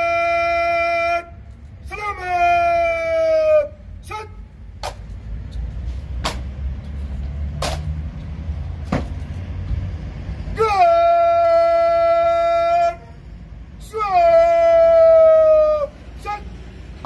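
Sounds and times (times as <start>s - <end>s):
bugle call: 0.0s - 4.5s, 10.6s - 13.2s, 13.8s - 16.5s.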